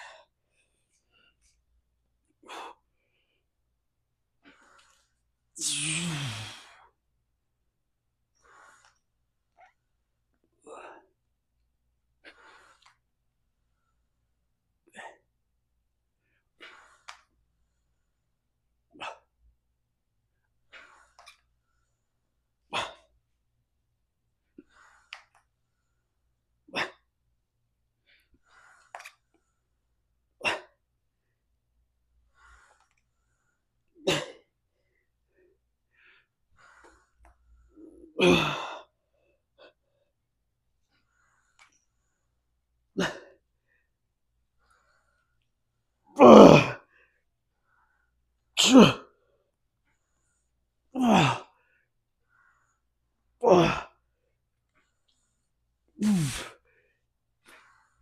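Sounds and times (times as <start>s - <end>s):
man breathing out forcefully: 5.6s - 6.8s, 56.0s - 56.6s
man's exhalations of effort: 5.6s - 6.8s, 56.0s - 56.6s.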